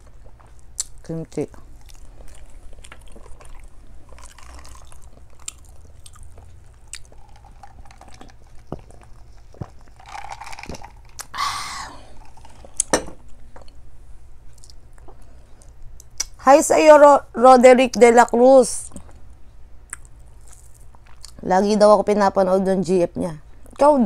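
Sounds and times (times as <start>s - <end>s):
person chewing food: 0.0s - 13.8s, 14.5s - 16.3s, 19.9s - 21.4s
small mouth clicks: 0.8s - 1.0s, 19.9s - 21.4s
person drinking from a cup: 1.9s - 12.9s.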